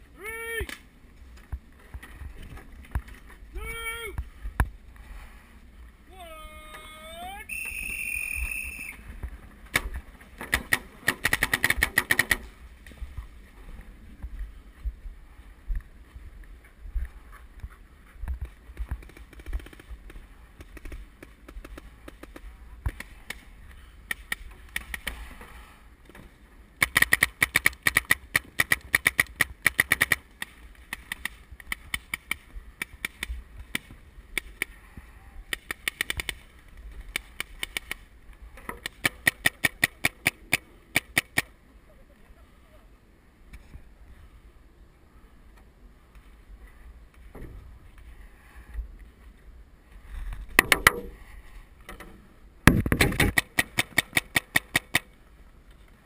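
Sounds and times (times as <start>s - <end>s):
paintball markers firing: 9.7s - 12.5s, 26.8s - 34.7s, 35.5s - 36.4s, 37.1s - 38.0s, 38.8s - 41.5s, 52.7s - 55.1s.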